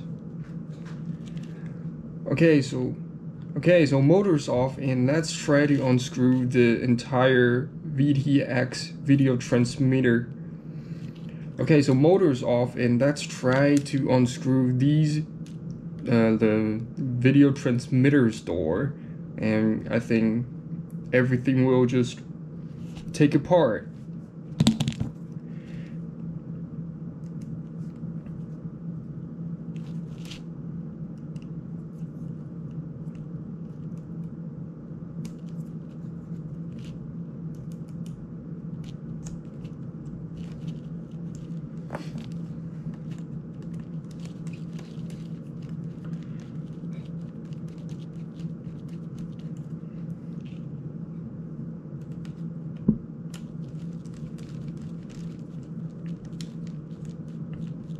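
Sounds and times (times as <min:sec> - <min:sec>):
low room tone hum: 0:00.0 - 0:57.9.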